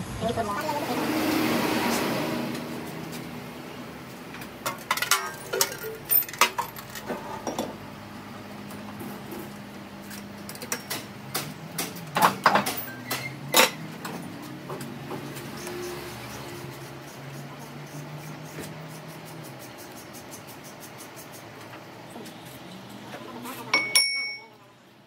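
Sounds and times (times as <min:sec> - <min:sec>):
metal clinks and clanks: 0:04.6 - 0:07.7, 0:12.4 - 0:14.3, 0:23.7 - 0:24.6.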